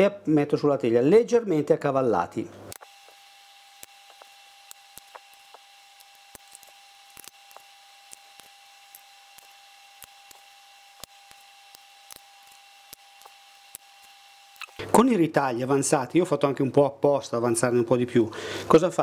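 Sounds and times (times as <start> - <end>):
faint steady hum: 2.4 - 17.1.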